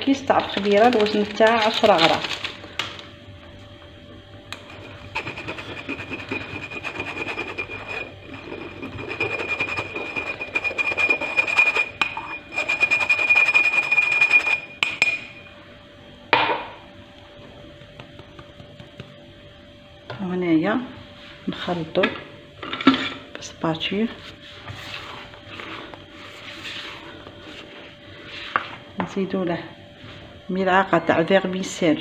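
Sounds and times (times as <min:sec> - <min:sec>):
sieve rasping rattle: 0:04.7 - 0:14.8.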